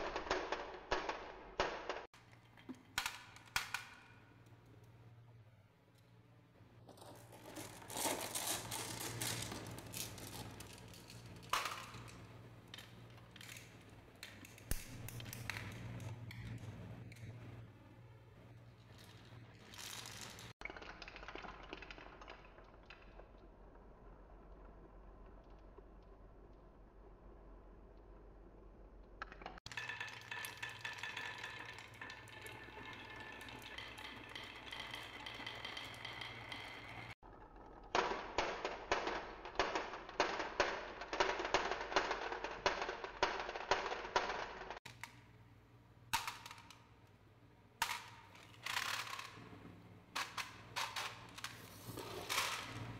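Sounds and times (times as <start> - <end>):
marbles clicking and clattering: 6.9 - 17.3, 18.9 - 26.7, 29.2 - 45.1, 47.8 - 52.9
marbles rattling down wooden run: 29.6 - 37.2.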